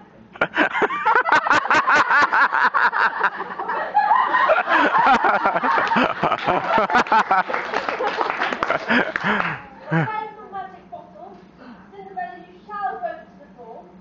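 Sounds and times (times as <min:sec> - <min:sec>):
audience laughing: 0:00.4 - 0:10.1.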